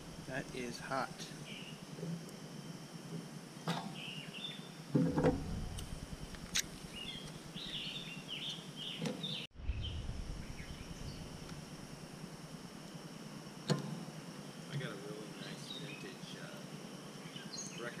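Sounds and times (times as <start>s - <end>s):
small birds chirping: 0.3s - 1.9s, 3.9s - 4.8s, 5.8s - 11.6s, 14.4s - 18.0s.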